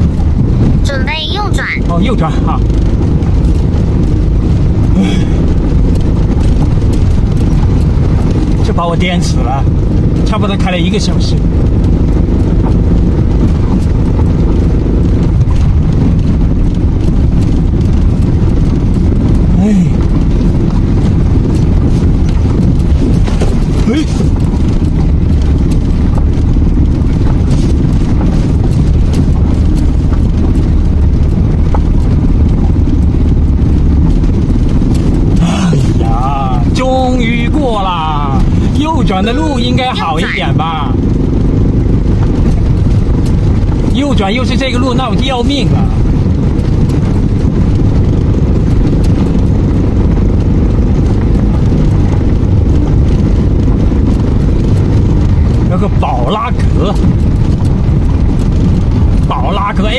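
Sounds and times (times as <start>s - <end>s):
tyres rumbling on gravel: 0.0s - 59.9s
rattles and knocks: 11.4s - 35.4s.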